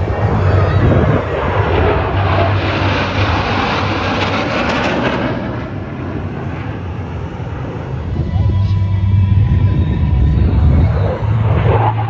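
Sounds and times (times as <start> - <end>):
military jets flying past: 0.0 - 12.0.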